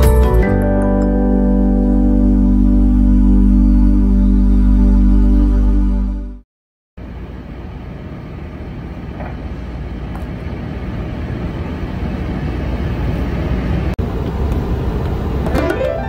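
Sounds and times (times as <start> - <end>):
low rumbling background noise: 7.0 - 16.0.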